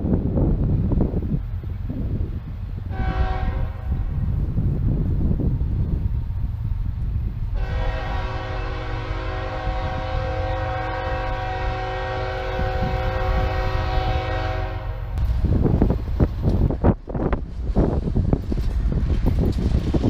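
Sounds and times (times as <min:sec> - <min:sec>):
locomotive air horn blast: 0:02.9 - 0:04.1, 0:07.6 - 0:15.2.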